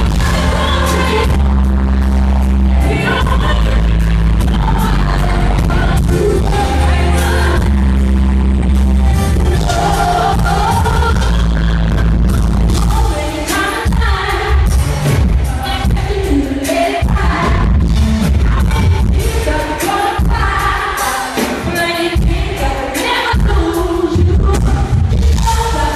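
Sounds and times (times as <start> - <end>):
woman singing into a microphone: 0.0 - 8.4, 9.3 - 25.9
band with heavy bass: 0.0 - 25.9.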